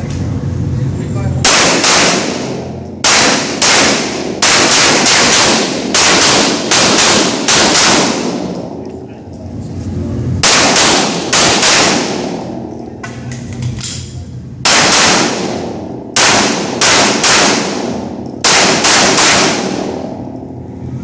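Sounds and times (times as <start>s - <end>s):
pistol shots with echo: 1.4s - 8.8s, 10.4s - 12.8s, 14.6s - 20.2s.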